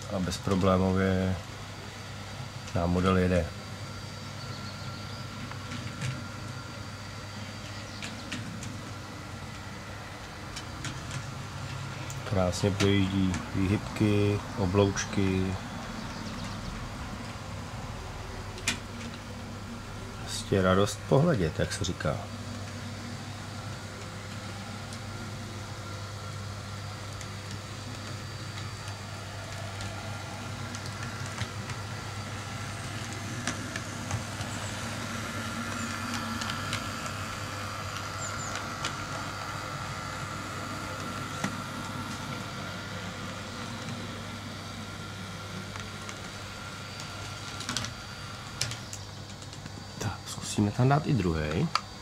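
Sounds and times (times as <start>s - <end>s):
model train motor whine: 0.0s - 52.0s
steady low hum: 0.0s - 52.0s.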